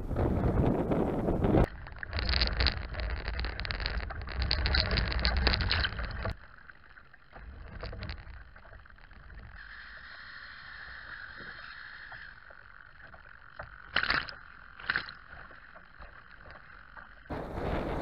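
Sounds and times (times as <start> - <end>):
wind buffeting microphone: 0.0 - 6.4, 17.3 - 18.0
thin steady whine: 0.0 - 18.0
water splashing against hull: 0.0 - 18.0
faint hiss: 9.5 - 12.6.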